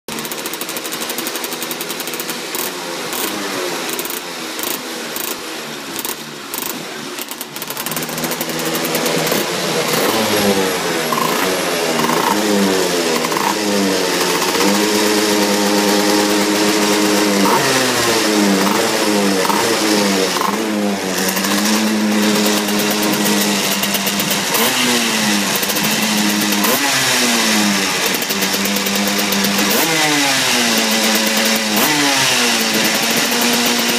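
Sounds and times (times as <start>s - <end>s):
kart engine revving: 0.1s - 33.9s
engine pops: 6.0s - 10.2s.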